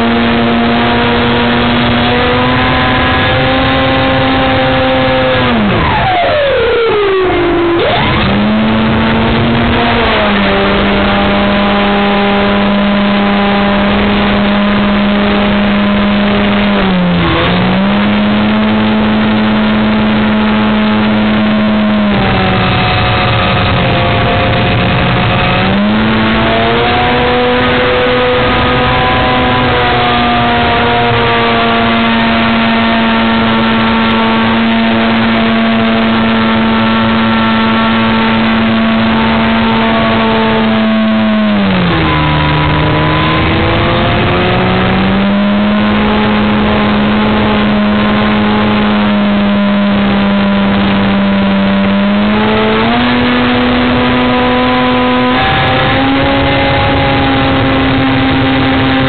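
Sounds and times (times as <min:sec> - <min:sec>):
electric motor buzzing drone: 0:00.0 - 0:59.0
rush of noise: 0:00.0 - 0:59.0.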